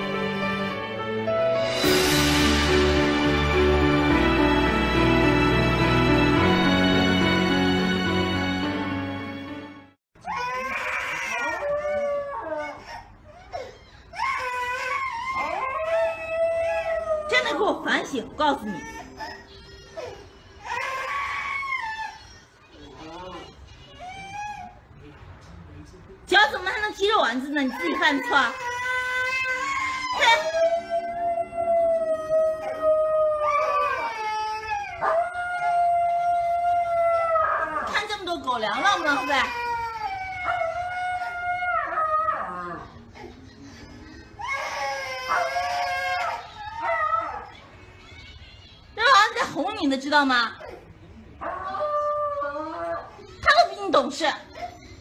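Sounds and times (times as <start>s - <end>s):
music: 0.0s - 10.0s
dog howling: 29.1s - 38.0s, 39.0s - 43.1s.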